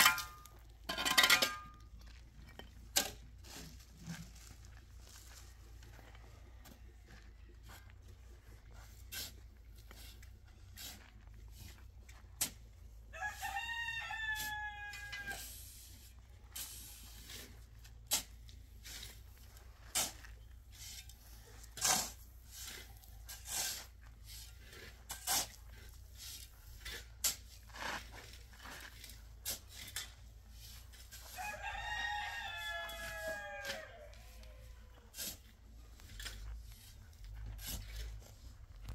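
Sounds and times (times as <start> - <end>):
rooster crowing: 13.2 - 15.4, 31.4 - 34.8.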